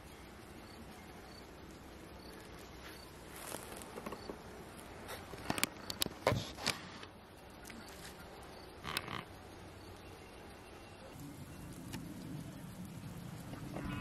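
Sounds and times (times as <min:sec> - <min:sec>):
honey bees buzzing: 0:10.4 - 0:14.0.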